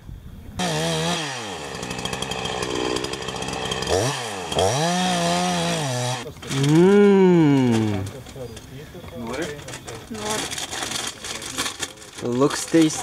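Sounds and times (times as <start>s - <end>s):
chainsaw cutting firewood: 0.6s - 8.1s.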